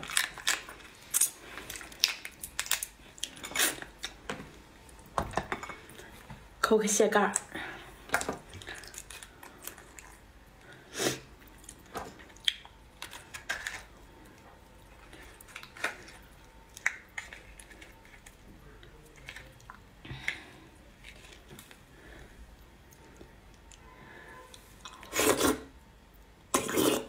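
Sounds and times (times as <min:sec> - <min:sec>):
crab shell cracking: 0:00.0 - 0:04.2.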